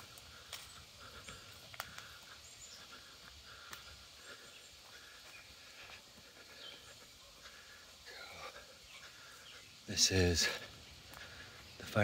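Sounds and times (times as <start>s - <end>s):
footsteps on dirt trail: 0.0s - 12.0s
faint bird chirps: 0.3s - 12.0s.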